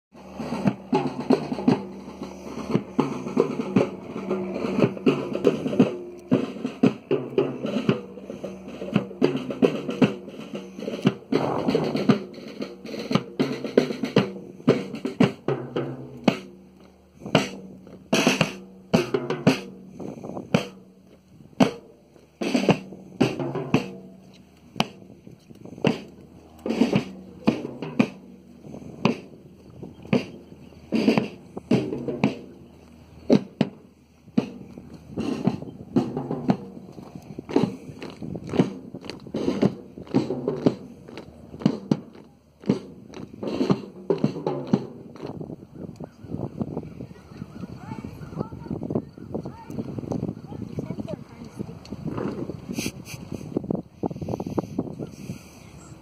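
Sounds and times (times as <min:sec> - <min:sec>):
snare and bass drum: 0:00.2 - 0:16.6, 0:17.3 - 0:19.9, 0:20.5 - 0:20.8, 0:21.6 - 0:24.2, 0:24.8 - 0:25.1, 0:25.8 - 0:26.1, 0:26.7 - 0:29.4, 0:30.1 - 0:32.6, 0:33.3 - 0:33.8, 0:34.4 - 0:36.8, 0:37.4 - 0:37.9, 0:38.5 - 0:41.0, 0:41.6 - 0:45.4.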